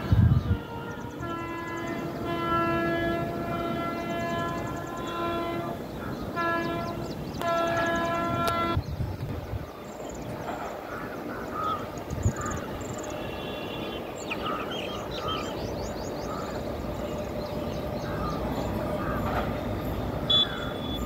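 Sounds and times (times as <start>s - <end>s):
locomotive air horn blasts: 0.1s - 8.8s, 13.0s - 14.0s, 19.2s - 21.0s.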